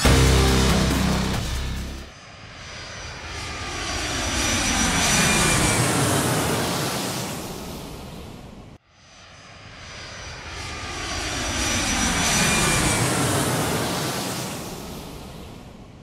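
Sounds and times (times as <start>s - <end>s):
aircraft flying past: 0.0s - 15.9s.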